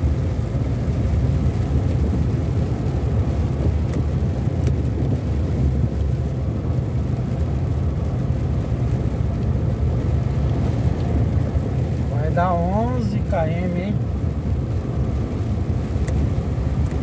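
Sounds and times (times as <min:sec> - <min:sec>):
car tyres and engine rumble: 0:00.0 - 0:17.0
windshield wiper ticks: 0:03.4 - 0:05.6, 0:14.8 - 0:17.0.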